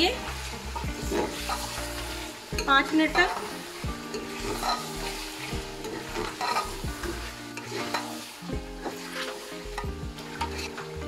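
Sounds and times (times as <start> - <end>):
background music: 0.0 - 11.0
frying sizzle: 0.0 - 11.0
metal ladle scraping a pot: 4.1 - 11.0.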